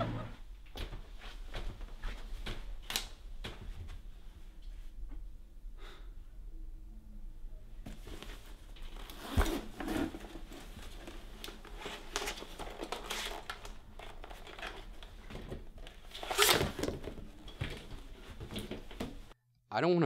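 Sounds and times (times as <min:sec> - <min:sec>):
clothing rustling: 0:07.8 - 0:19.4.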